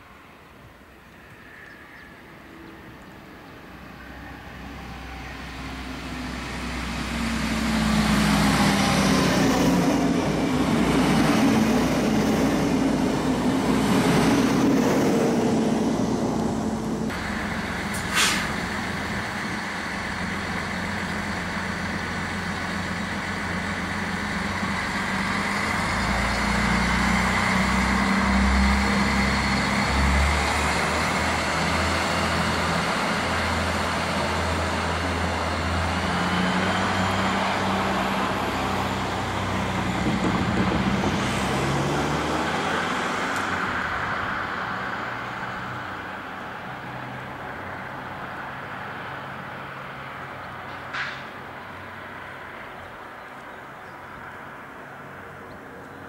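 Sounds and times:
diesel railcar passing: 0.0 - 56.0
low engine rumble: 4.0 - 42.0
train wheels on rails: 5.6 - 43.6, 50.5 - 51.8.

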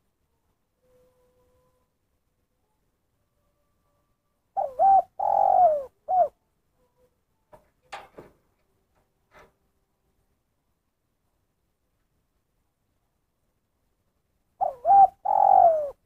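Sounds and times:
dove cooing: 4.5 - 6.4, 14.6 - 16.0.

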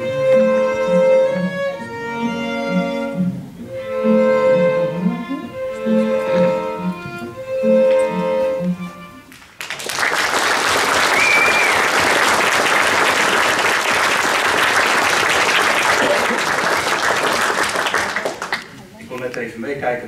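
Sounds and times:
string ensemble chord: 0.0 - 9.3
audience applause: 9.3 - 18.8.

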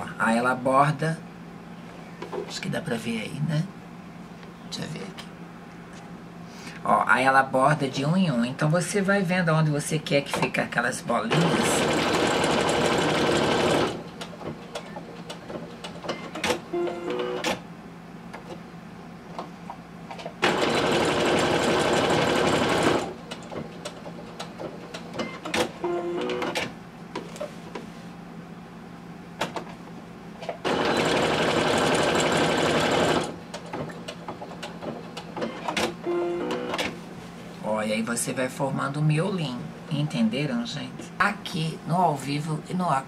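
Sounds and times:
sewing machine stitching: 11.3 - 14.0, 20.4 - 23.1, 30.6 - 33.4.

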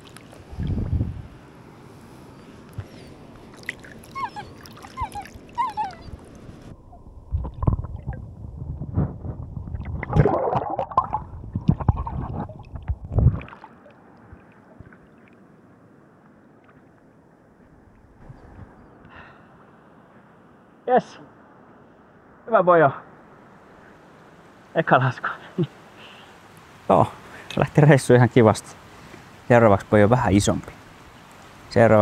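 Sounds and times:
muffled water splashing: 0.0 - 1.3, 2.7 - 19.0
faint river noise: 0.0 - 8.4, 10.2 - 32.0.

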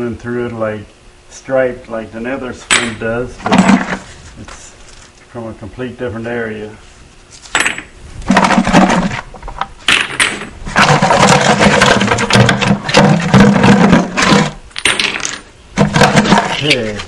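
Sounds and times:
rocks clattering in a bucket: 7.6 - 17.0.

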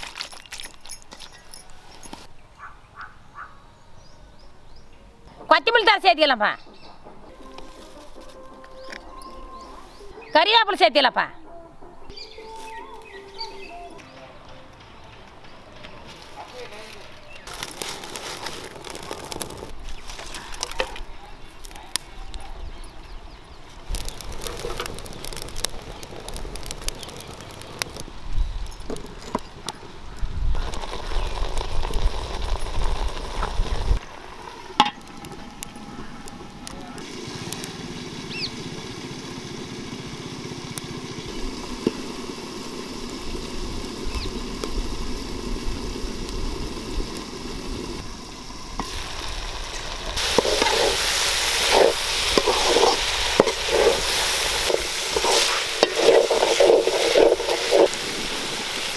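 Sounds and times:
wood fire crackling: 14.7 - 58.9
chicken sizzling: 17.4 - 21.8, 23.6 - 58.9
metal spoon stirring in pot: 51.6 - 58.0.

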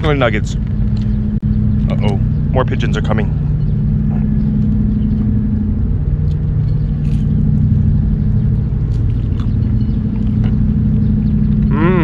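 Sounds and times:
low mechanical drone: 0.0 - 12.0
chewing crunchy food: 6.2 - 11.7.

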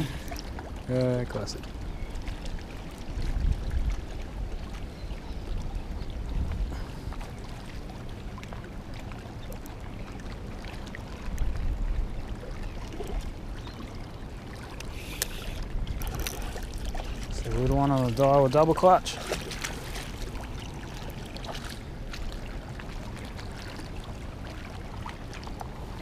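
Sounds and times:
wind buffeting microphone: 1.8 - 7.9, 14.8 - 22.8
fish splashing: 19.0 - 23.9.

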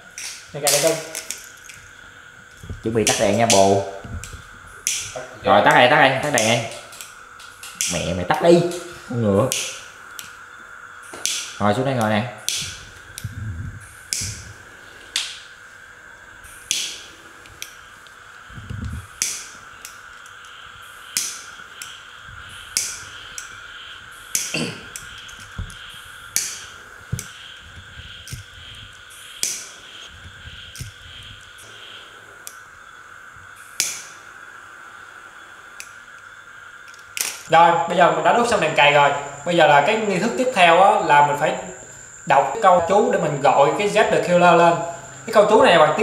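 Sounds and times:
lighter clicking: 11.2 - 11.6, 19.2 - 22.0, 22.7 - 23.6, 24.3 - 27.3, 29.4 - 29.8, 33.6 - 34.2, 35.8 - 37.4.

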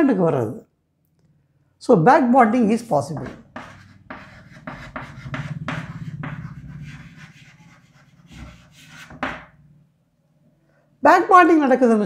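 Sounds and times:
pen scratching on paper: 3.2 - 9.5
steady low hum: 3.4 - 10.7.

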